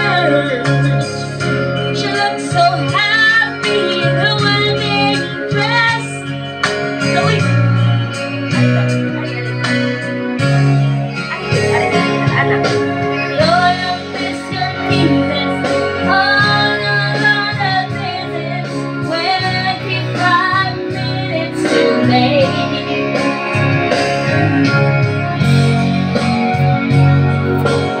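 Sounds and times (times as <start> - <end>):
woman singing into microphone: 0.0 - 7.7, 11.4 - 23.9
instrumental backing track: 0.0 - 28.0.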